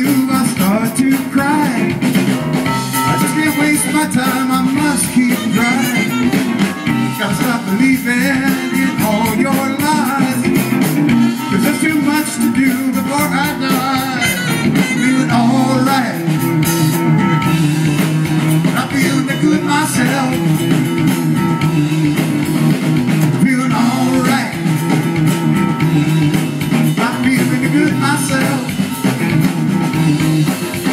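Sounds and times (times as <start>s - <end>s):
live band through speakers: 0.0s - 30.9s.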